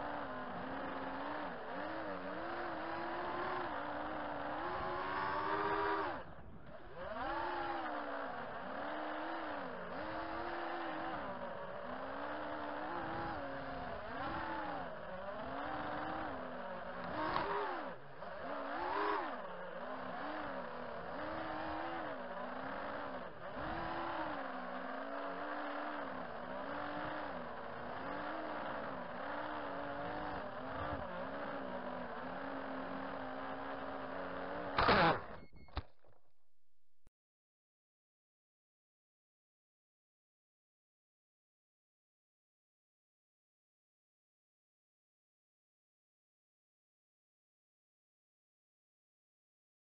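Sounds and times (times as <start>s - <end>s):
drone motors buzzing whine: 0.0s - 36.2s.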